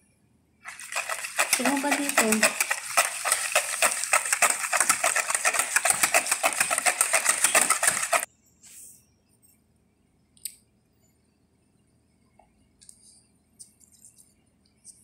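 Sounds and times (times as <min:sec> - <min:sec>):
wire whisk beating in plastic bowl: 0:00.7 - 0:08.3.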